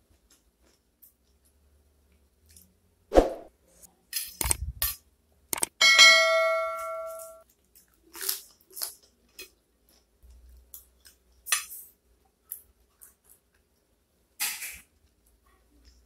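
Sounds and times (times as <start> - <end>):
lettuce crunching: 7.4 - 11.2.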